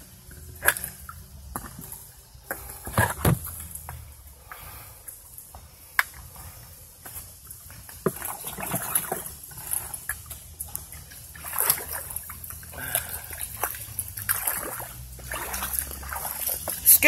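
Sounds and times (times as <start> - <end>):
rustling through wet brush: 0.1 - 17.0
splashy footsteps: 7.0 - 17.0.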